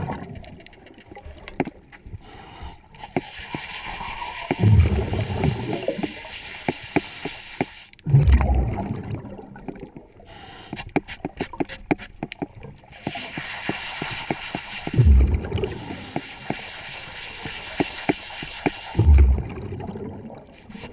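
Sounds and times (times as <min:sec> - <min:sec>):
exhaled bubbles underwater: 0:00.0 - 0:01.5, 0:03.8 - 0:06.3, 0:08.0 - 0:10.3, 0:14.9 - 0:16.4, 0:19.0 - 0:20.6
clicks and crackles: 0:00.1 - 0:02.1.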